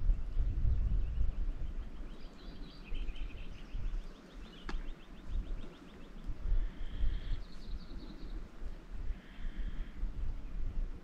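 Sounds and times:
small birds chirping: 0.0s - 11.0s
wind rumble on microphone: 0.0s - 11.0s.

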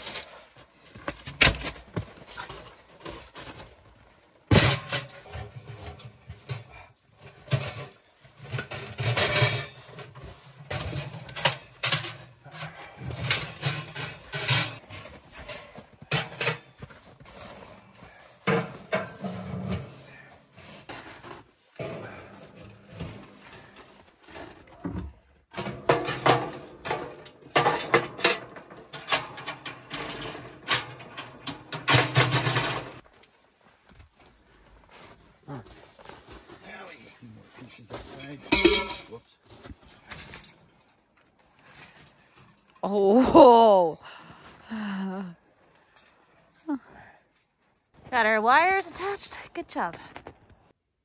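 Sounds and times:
metal stove parts clanking: 7.3s - 14.8s, 15.5s - 16.8s, 18.5s - 19.9s, 25.5s - 33.0s, 38.5s - 39.2s.

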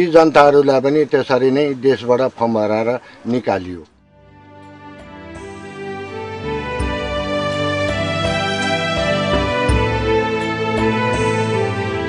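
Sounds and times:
slow instrumental music: 3.9s - 12.0s.

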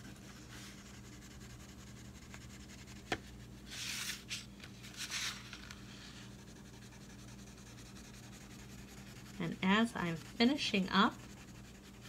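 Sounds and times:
crayon scratching on paper: 0.0s - 3.0s, 6.3s - 12.0s.

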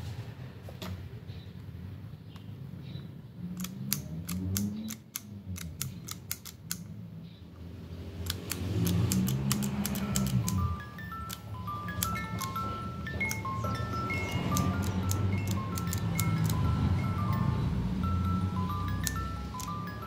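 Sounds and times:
chime-like music: 9.7s - 20.0s.

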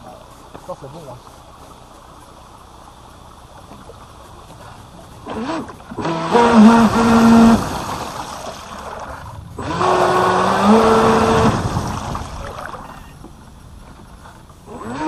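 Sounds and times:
water rushing: 0.0s - 15.0s
electric motor whining: 5.2s - 8.5s, 9.6s - 12.4s, 14.7s - 15.0s.

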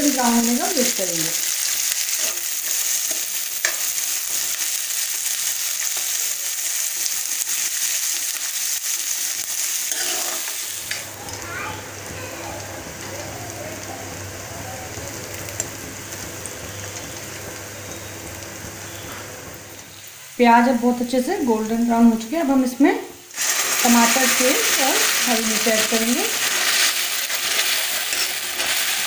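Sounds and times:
onions sizzling in a pan: 0.0s - 29.0s
metal spoon stirring: 9.8s - 11.1s, 23.4s - 29.0s
low steady hum: 10.9s - 22.4s.

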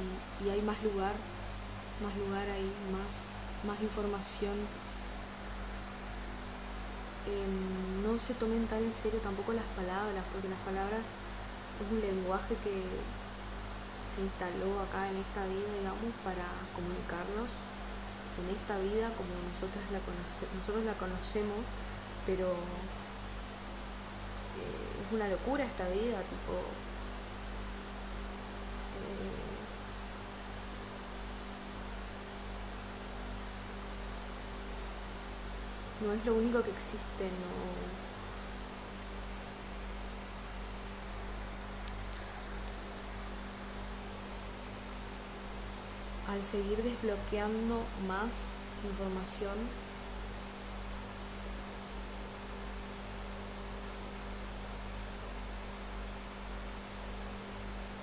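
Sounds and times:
electrical hum: 0.0s - 58.0s
faint hiss: 0.0s - 58.0s
even hiss: 23.9s - 27.3s, 28.8s - 30.1s.

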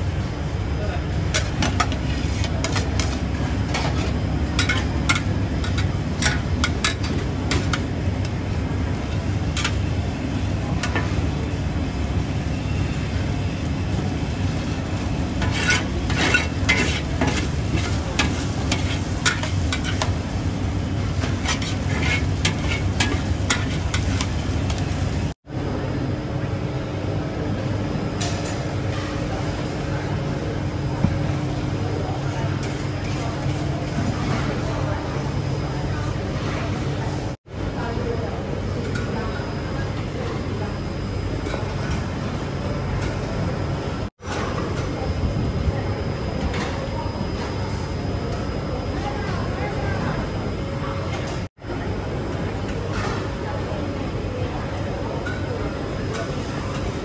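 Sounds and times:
noodles sizzling: 1.3s - 25.4s
metal ladle scraping a wok: 1.4s - 7.8s, 15.3s - 20.2s, 21.2s - 24.4s.

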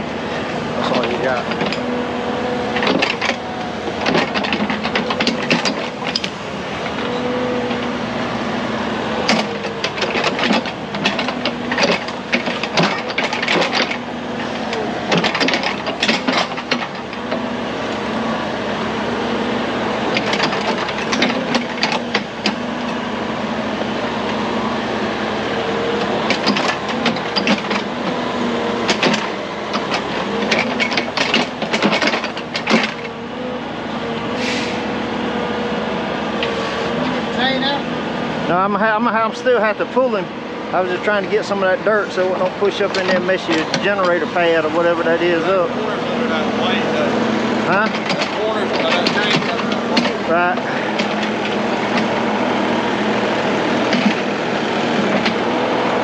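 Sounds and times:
excavator diesel engine: 0.0s - 56.0s
bucket clanking and scraping: 0.7s - 1.9s, 2.7s - 7.2s, 9.2s - 17.5s, 20.0s - 24.0s, 25.8s - 33.2s, 38.5s - 52.5s, 53.4s - 56.0s.

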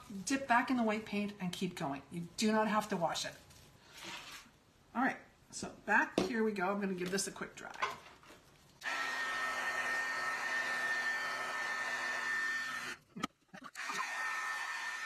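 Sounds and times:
heat gun blowing with high whine: 8.8s - 13.0s, 13.8s - 15.0s.

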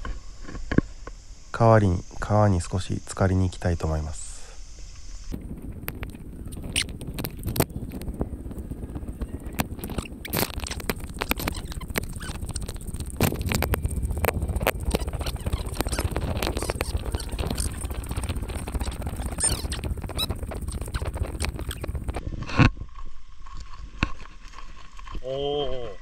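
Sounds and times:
low steady rumble: 5.3s - 22.5s.

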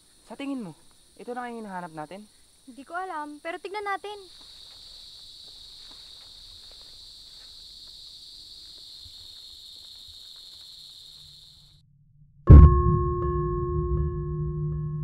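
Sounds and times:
high-pitched insect chorus: 0.0s - 11.8s
faint footsteps on a path: 4.0s - 11.5s
sudden music hit with low tones: 12.4s - 15.0s.

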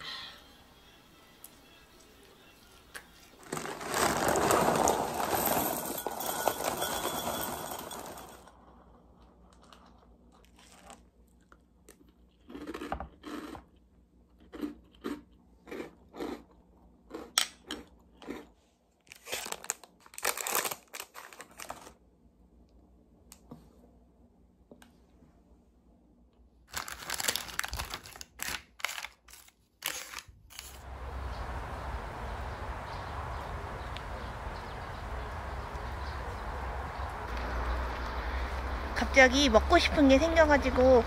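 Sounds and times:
crunching cereal: 3.0s - 8.4s, 9.1s - 22.0s, 26.7s - 30.8s
packet rustling and rattling: 3.4s - 8.4s, 19.1s - 22.0s, 26.7s - 30.9s.

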